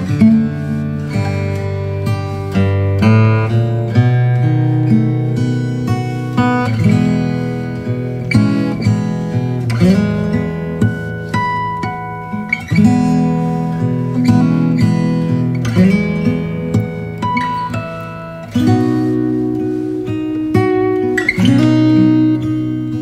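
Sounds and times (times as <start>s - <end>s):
acoustic guitar playing: 0.0s - 23.0s.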